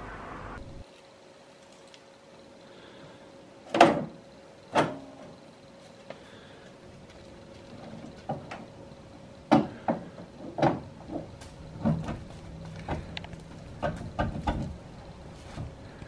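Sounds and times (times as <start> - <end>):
faint steady hum: 0.0 - 16.0
clunks and knocks: 9.5 - 14.8.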